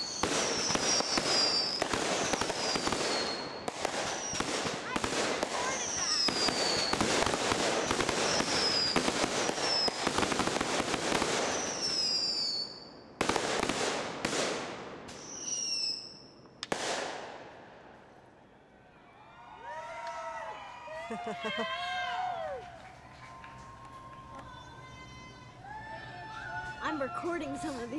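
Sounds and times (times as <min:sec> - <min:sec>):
fireworks whistles falling in pitch: 0:00.0 - 0:13.0, 0:15.1 - 0:16.4
fireworks bangs and crackling: 0:00.0 - 0:18.2.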